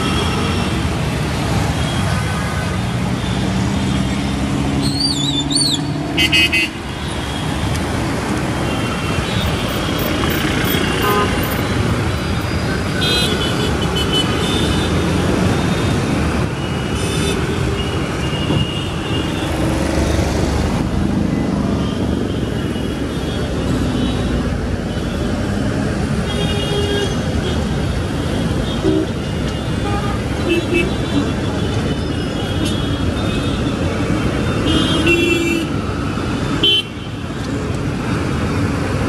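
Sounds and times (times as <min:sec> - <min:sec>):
traffic engines and tyres: 0:00.0 - 0:39.0.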